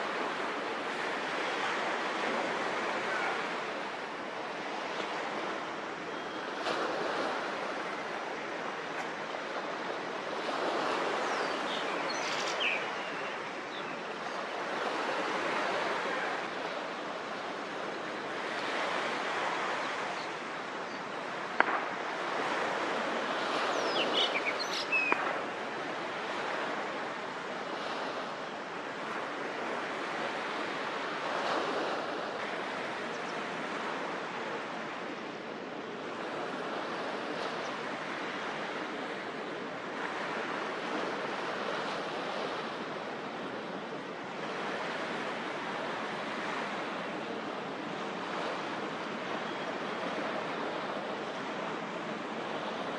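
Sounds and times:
wind: 0.0s - 52.9s
harbour water washing: 13.4s - 52.9s.

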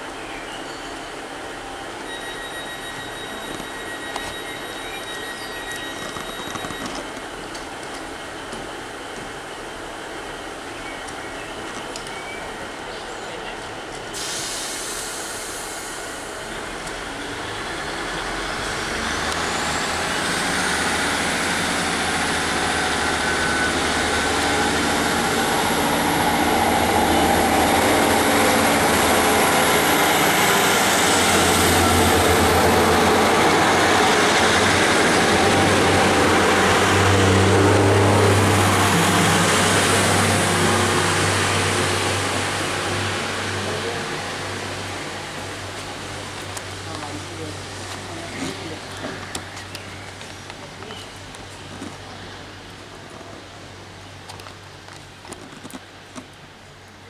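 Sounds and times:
diesel train accelerating: 0.0s - 57.0s
high whine rising: 15.4s - 46.9s.

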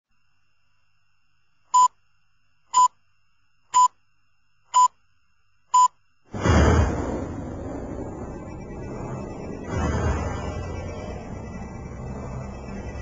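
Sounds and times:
loud low rumble: 6.3s - 13.0s.

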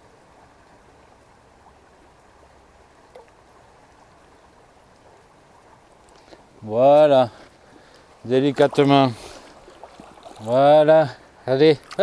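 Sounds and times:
shallow stream running: 0.0s - 12.0s.

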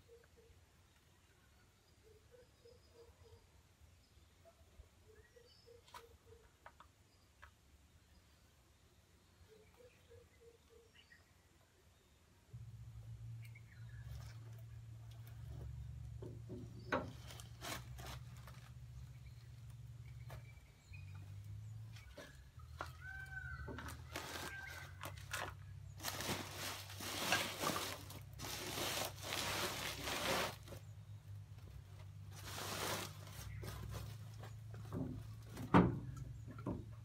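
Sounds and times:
bird chirping: 0.0s - 12.5s, 13.1s - 17.6s, 18.5s - 23.6s
steady low hum: 12.4s - 16.5s.

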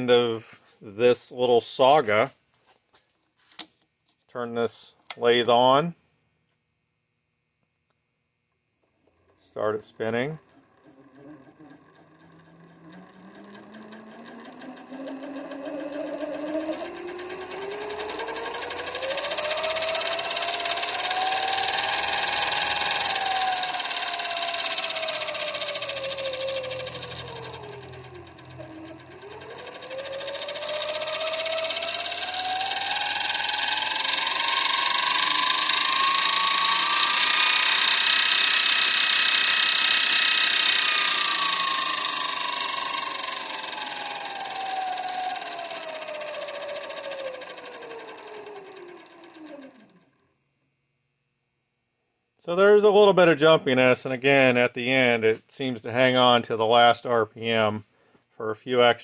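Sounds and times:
lathe motor whine: 8.8s - 50.2s.

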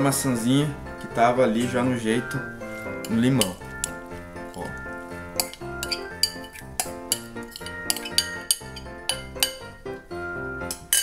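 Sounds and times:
background music: 0.0s - 11.0s
metal spoon scraping glass bowl: 5.4s - 9.6s.

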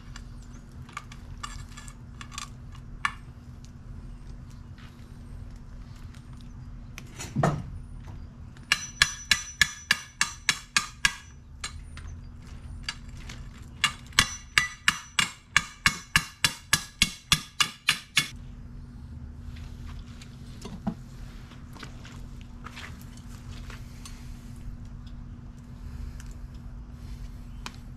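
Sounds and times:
hammer striking metal: 8.7s - 11.8s, 13.8s - 18.4s.

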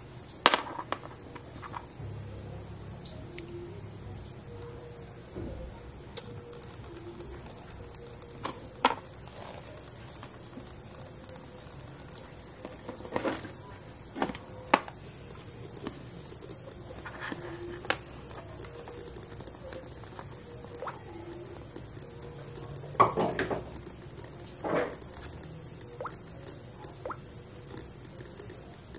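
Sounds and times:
small clicks and taps: 6.2s - 28.9s.

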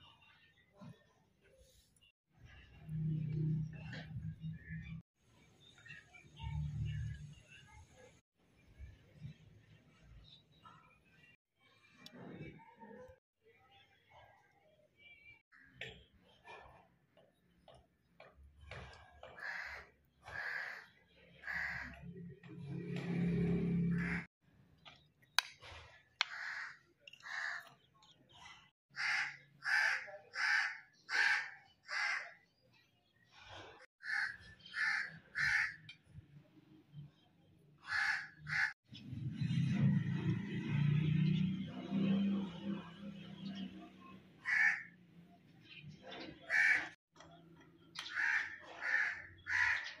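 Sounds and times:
crow cawing: 19.4s - 22.0s, 26.3s - 27.6s, 29.0s - 32.4s, 34.0s - 35.8s, 37.8s - 38.7s, 44.4s - 45.0s, 46.5s - 47.0s, 48.0s - 49.9s.

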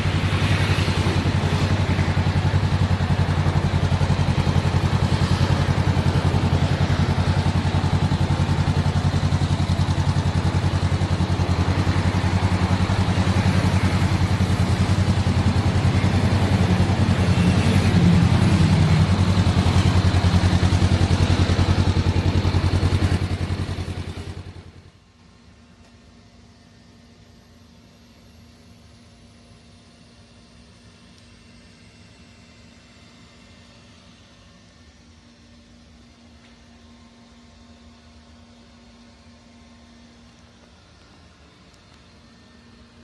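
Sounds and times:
motorcycle engine idling: 0.0s - 25.6s.

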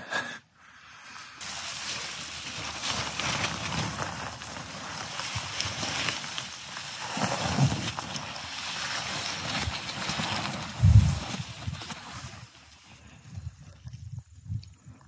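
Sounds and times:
twigs scraping against clothing: 1.4s - 13.0s.

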